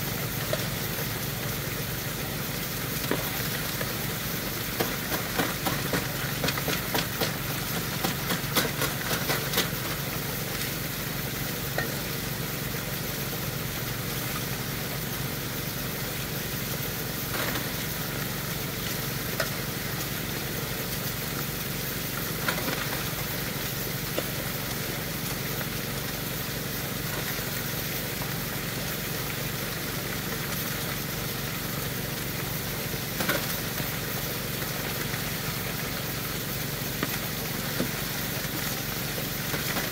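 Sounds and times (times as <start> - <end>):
small pump engine humming: 0.0 - 39.9
water spraying: 0.0 - 39.9
gravel and rocks clattering: 4.8 - 10.0, 17.3 - 18.0, 22.2 - 23.4, 39.3 - 39.9.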